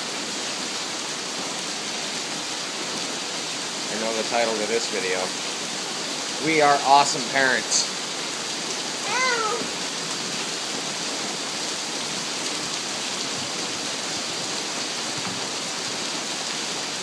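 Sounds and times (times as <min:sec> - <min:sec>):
rain on pavement and grass: 0:00.0 - 0:17.0
short voice: 0:09.0 - 0:09.7.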